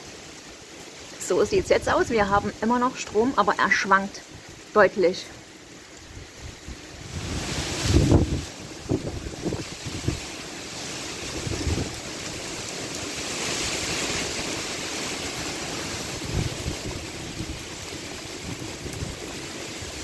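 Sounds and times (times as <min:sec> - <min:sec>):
heavy rushing rain: 0:00.0 - 0:20.0
wind gusts buffeting microphone: 0:05.9 - 0:20.0.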